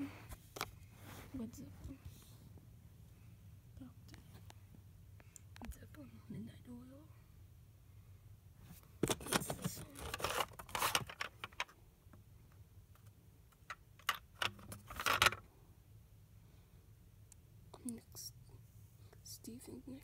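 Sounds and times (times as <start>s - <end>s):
plastic cases clattering: 9.0s - 11.7s, 13.6s - 15.4s.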